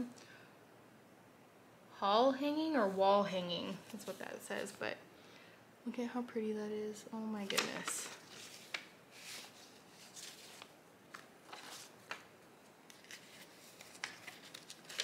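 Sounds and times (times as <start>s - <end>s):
paper rustling: 7.4s - 15.0s.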